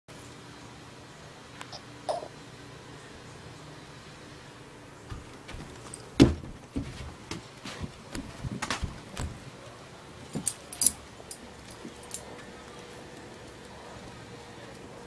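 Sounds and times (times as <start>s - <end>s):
dog paws on wooden boards: 5.1s - 9.5s.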